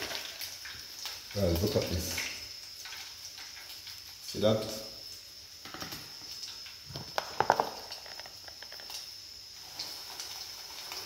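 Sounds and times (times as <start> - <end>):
oil sizzling in a frying pan: 0.0 - 11.0
plastic tub knocking and rattling: 6.9 - 8.9.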